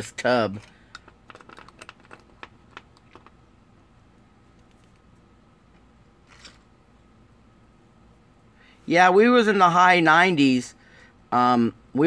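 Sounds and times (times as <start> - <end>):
plastic model parts clicking: 0.9 - 3.4.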